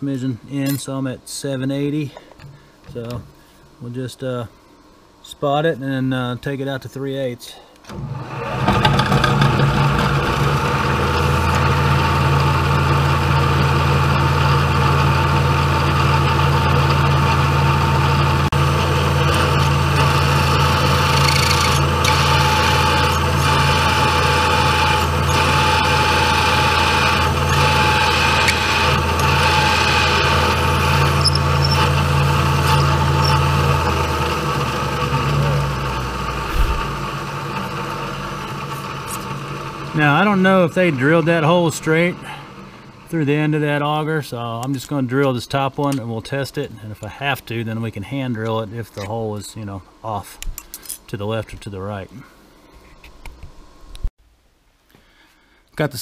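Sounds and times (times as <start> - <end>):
milling machine spindle running: 7.9 - 43.8
high whine of drill cutting steel: 8.2 - 43.0.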